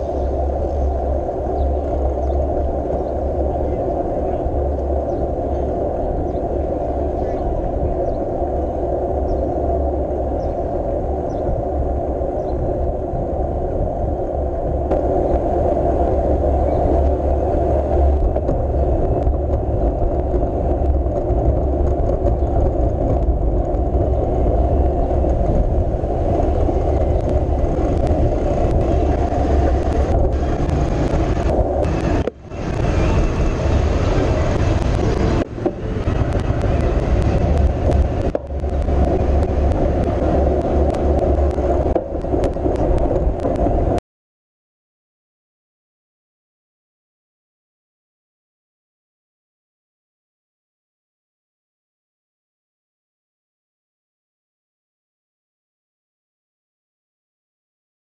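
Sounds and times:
wind and road noise rumble: 0.0s - 44.0s.

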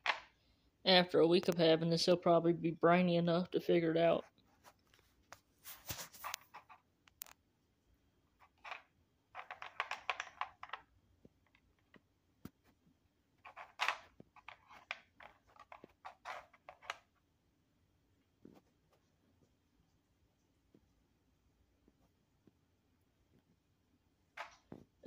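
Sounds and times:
plastic puzzle clicking and clattering: 8.4s - 12.0s, 13.4s - 17.1s.

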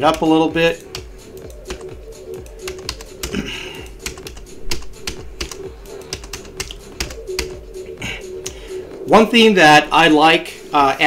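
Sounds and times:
computer keyboard keys pressed: 0.9s - 7.6s.

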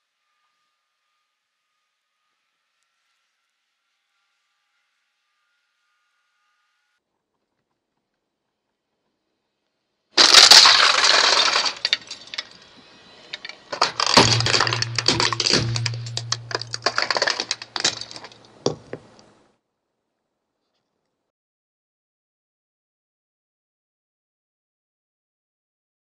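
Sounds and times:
plastic toy crunching and cracking: 10.2s - 12.5s, 13.3s - 18.6s
low hum: 13.7s - 18.4s.

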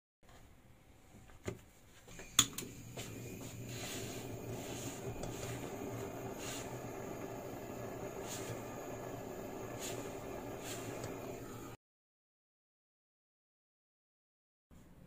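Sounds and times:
blowtorch igniter click: 2.4s - 2.8s, 4.2s - 11.7s
blowtorch flame burning: 2.4s - 11.8s.

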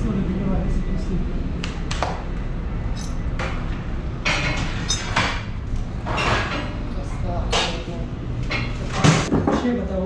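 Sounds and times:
steady low hum: 0.0s - 9.3s
steel frame scraping and clanking: 4.3s - 6.8s.

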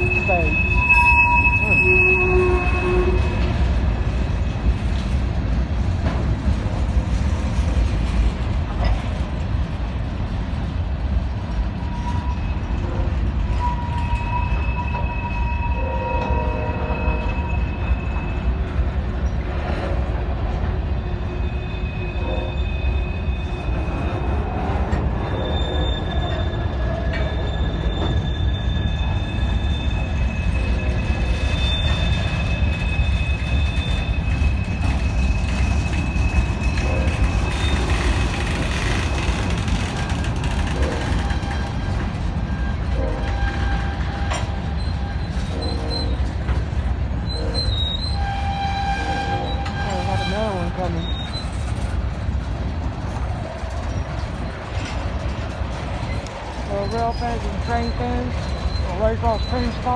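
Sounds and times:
high wheel squeals: 0.0s - 3.6s, 20.9s - 46.6s, 47.2s - 51.9s, 56.0s - 59.9s
train wheels rumbling on rail: 0.0s - 59.9s.

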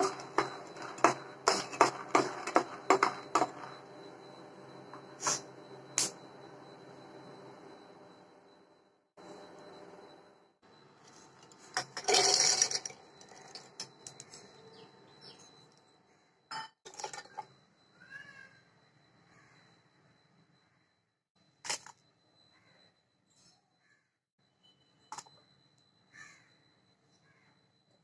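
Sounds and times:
peanuts clattering into steel jar: 11.9s - 13.0s.

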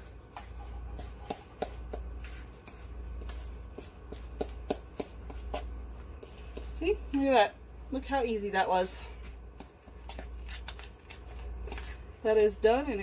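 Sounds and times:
steady low hum: 0.0s - 13.0s
fork scraping a metal bowl: 10.0s - 12.1s.

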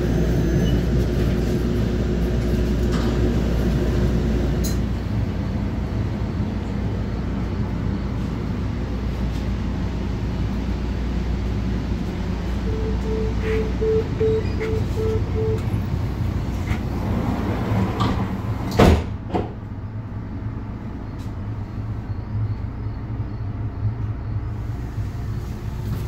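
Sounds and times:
low train rumble: 0.0s - 26.0s
train door warning beeps: 12.5s - 16.0s
train door banging shut: 17.7s - 19.6s.

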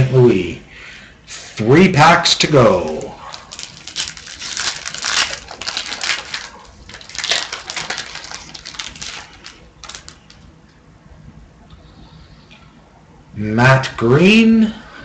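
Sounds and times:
wrapper tearing and crinkling: 2.7s - 10.4s.

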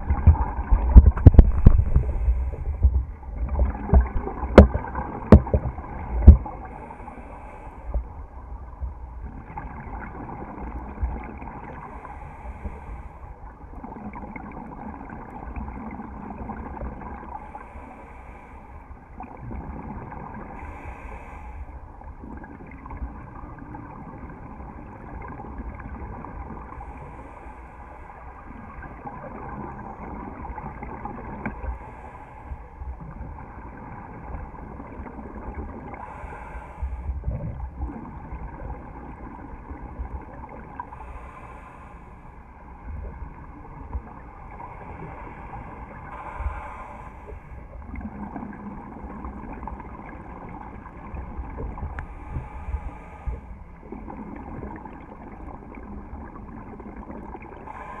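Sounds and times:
regulator hiss on inhale: 6.6s - 8.1s, 11.9s - 13.4s, 17.4s - 19.0s, 20.6s - 21.8s, 26.8s - 28.4s, 31.6s - 32.8s, 36.0s - 37.2s, 40.8s - 42.5s, 44.7s - 47.7s, 52.0s - 53.7s, 57.6s - 58.0s.

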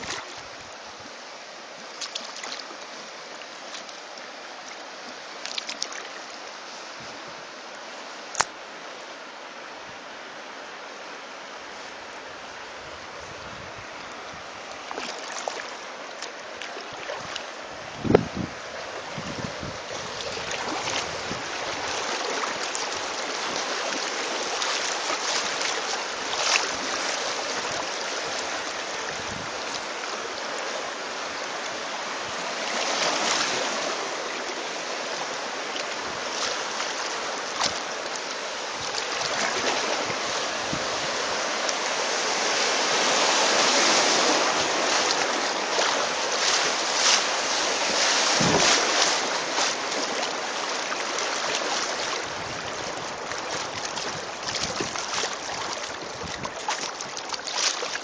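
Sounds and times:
rushing creek water: 0.0s - 58.0s
sharp water splashes: 19.9s - 30.2s, 35.6s - 58.0s.

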